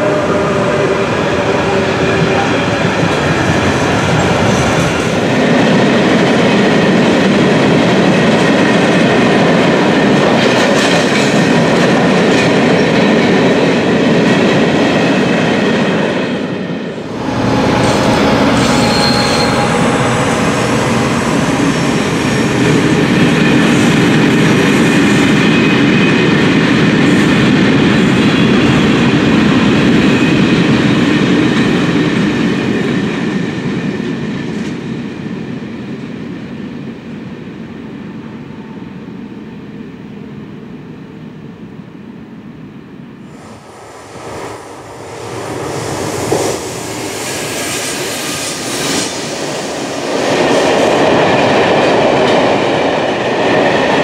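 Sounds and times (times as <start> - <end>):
electric locomotive approaching: 0.0 - 54.0
freight train wheels rumbling on rail: 0.0 - 54.0.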